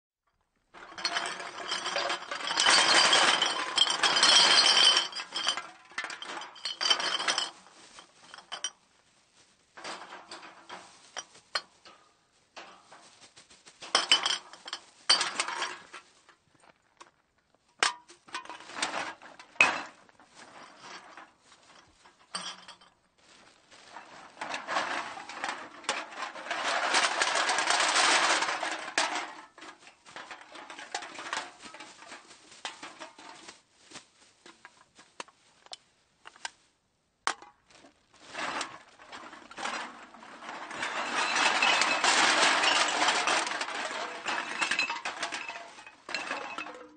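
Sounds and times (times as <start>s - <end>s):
cans clattering and clinking: 0.7s - 8.7s, 9.8s - 12.0s, 13.8s - 16.0s, 17.8s - 21.3s, 23.9s - 33.5s, 38.3s - 46.9s.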